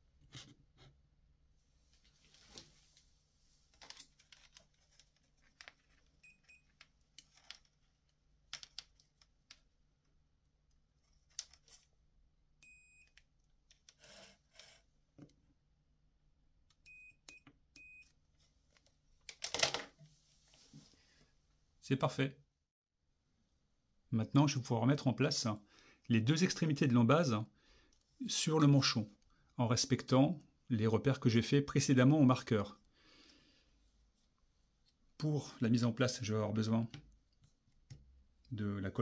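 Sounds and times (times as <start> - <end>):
clicks and knocks of plastic parts: 8.4 - 9.6.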